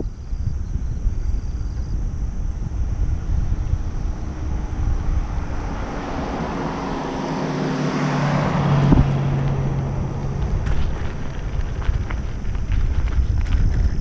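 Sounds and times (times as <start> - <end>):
wind noise on microphone: 0.0 - 14.0
car driving past: 2.2 - 12.8.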